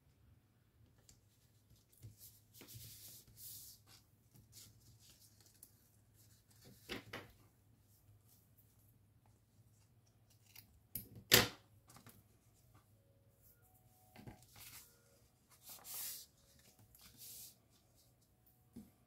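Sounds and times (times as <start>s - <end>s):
paper rustling swishes: 14.4s - 18.2s.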